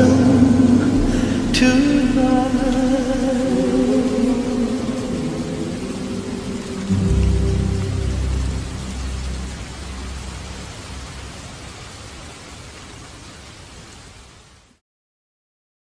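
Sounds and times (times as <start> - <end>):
low rumble: 0.0 - 11.4
steady rain hiss: 0.0 - 14.8.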